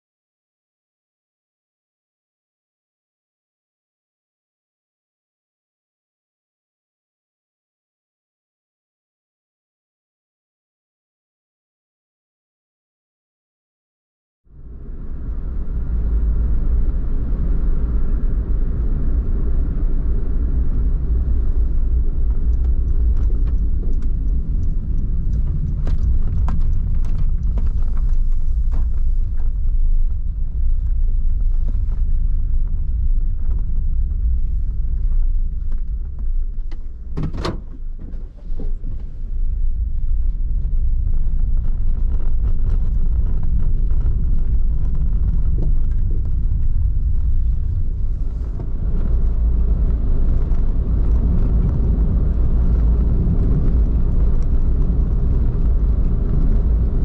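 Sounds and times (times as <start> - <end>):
engine and road noise: 14.5 - 57.0
light clicks and rattles: 22.2 - 30.0.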